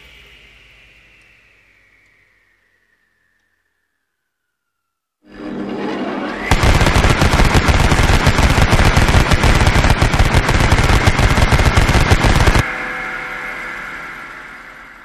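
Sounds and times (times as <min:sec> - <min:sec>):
gunfire echo: 0:06.5 - 0:12.6
machine gun firing: 0:06.5 - 0:12.6.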